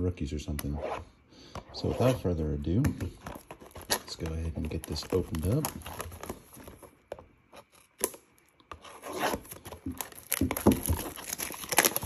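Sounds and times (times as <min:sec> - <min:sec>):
shrink wrap crinkling: 0:03.2 - 0:12.0.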